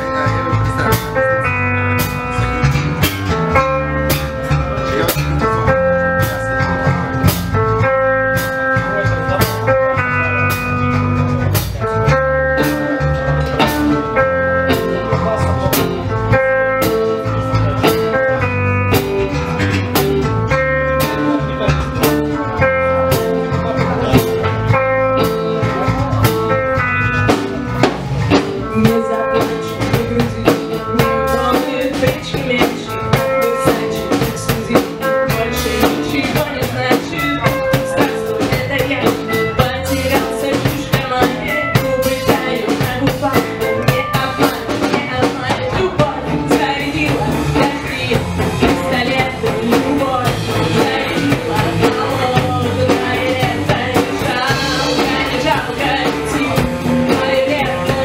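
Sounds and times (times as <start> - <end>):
drum kit beat: 0.0 - 58.0
electric guitars: 0.0 - 58.0
woman singing: 28.4 - 58.0.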